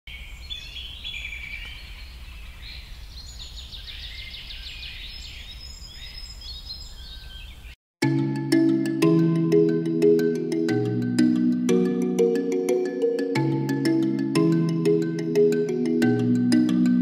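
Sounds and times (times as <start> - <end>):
birds singing: 0.1 - 7.8.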